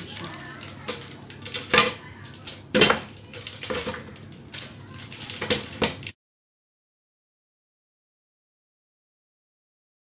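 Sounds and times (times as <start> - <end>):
plastic wrapper crinkling: 0.0 - 6.2.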